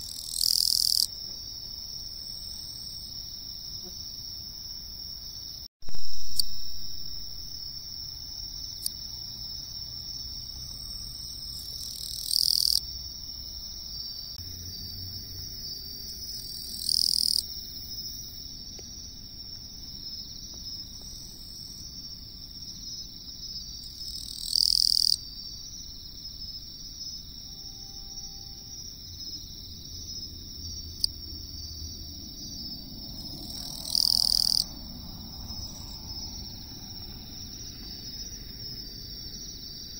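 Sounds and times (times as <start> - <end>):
katydid buzzy chirps: 0.0 - 1.1, 11.5 - 12.8, 16.2 - 17.4
high insect chorus: 0.0 - 39.9
loud thump: 5.8 - 7.5.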